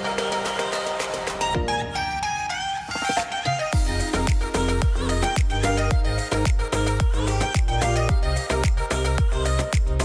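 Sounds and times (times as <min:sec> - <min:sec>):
dance music with kick drum: 0:03.7 - 0:10.0.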